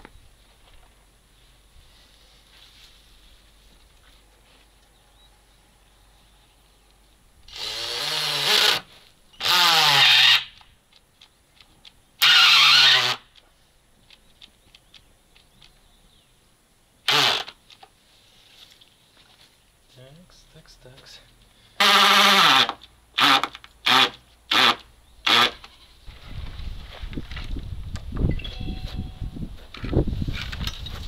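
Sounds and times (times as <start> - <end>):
cordless drill drilling into wood: 7.5 - 10.6, 12.2 - 13.2, 17.1 - 17.5, 21.8 - 25.6.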